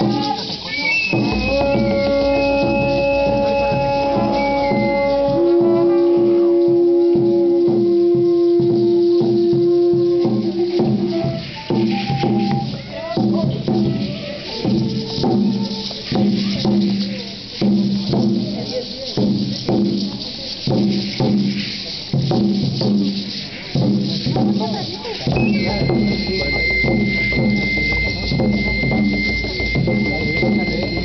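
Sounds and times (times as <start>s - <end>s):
conch shell trumpets: 0.0s - 12.8s, 25.4s - 31.0s
steady drum beat: 0.0s - 31.0s
rattles shaking: 14.5s - 31.0s.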